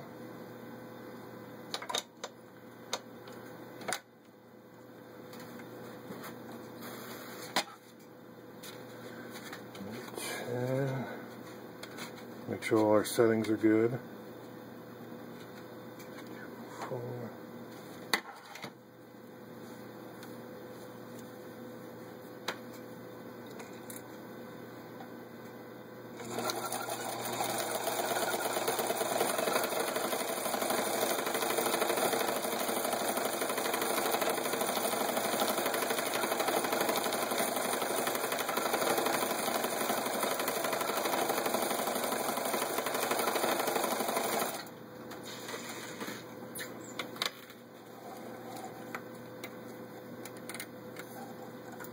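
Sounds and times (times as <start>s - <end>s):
sewing machine running: 26.2s - 44.7s.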